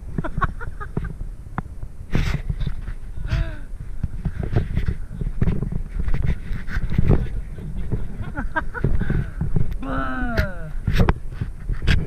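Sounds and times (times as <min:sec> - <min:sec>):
tyres on dirt: 0:00.0 - 0:12.0
wind buffeting microphone: 0:00.0 - 0:12.0
bike rattling and knocking: 0:02.1 - 0:09.7.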